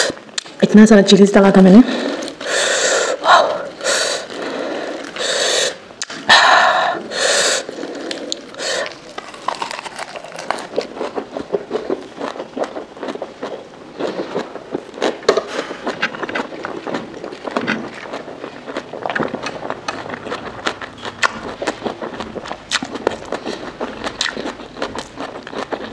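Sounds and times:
breathy mouth huffs: 0:01.9 - 0:09.0
crunchy chewing: 0:02.0 - 0:06.3, 0:07.0 - 0:25.9.

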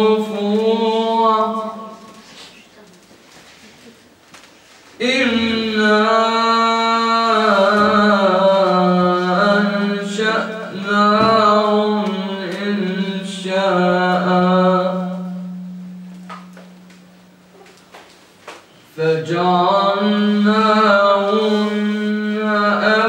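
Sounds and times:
young man chanting into microphone: 0:00.0 - 0:02.2, 0:05.0 - 0:15.7, 0:18.9 - 0:23.0.

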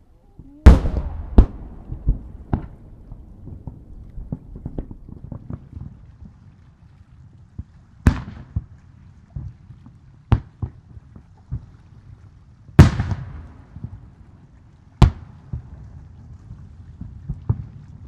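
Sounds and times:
fireworks crackling: 0:00.0 - 0:05.8
rumbling echo: 0:00.2 - 0:05.8
fireworks booming: 0:00.4 - 0:06.0
low thuds: 0:00.4 - 0:06.0.

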